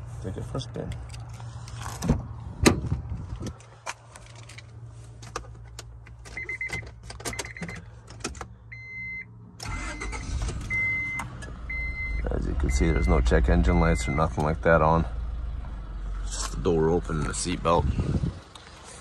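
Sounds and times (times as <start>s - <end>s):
car door clunks: 2.0s - 3.0s
dashboard warning chime beeping: 6.4s - 7.8s, 8.7s - 14.4s
car engine starting: 9.6s - 19.0s.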